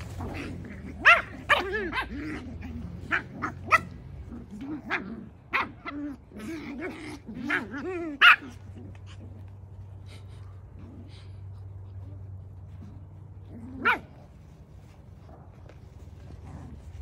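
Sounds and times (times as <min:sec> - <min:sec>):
puppies barking and yipping: 0:00.0 - 0:10.4.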